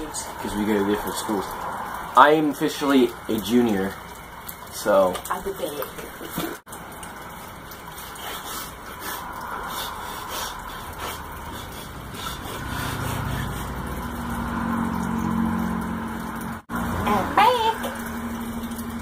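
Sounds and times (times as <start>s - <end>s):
motor hum: 10.8s - 19.0s.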